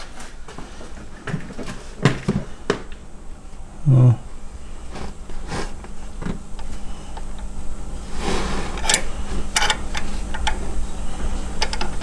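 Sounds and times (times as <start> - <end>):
low steady hum: 0.0 - 12.0
hand tools clicking and knocking: 8.8 - 10.6, 11.6 - 12.0.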